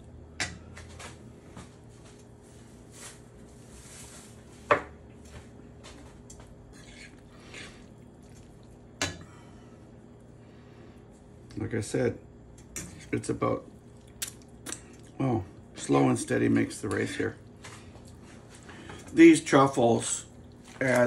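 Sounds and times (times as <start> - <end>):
wet squelching of pasta: 6.8 - 9.0, 13.6 - 15.9, 20.0 - 21.0.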